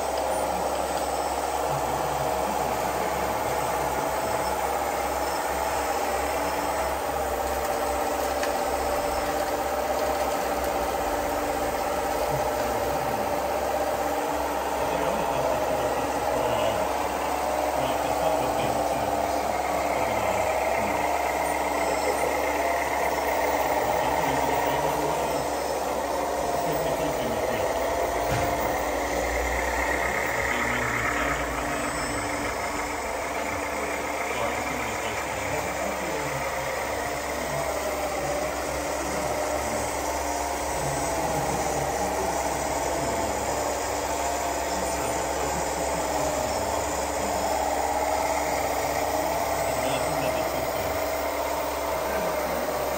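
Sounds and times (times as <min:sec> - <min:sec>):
model truck motor whine: 0:00.0 - 0:52.9.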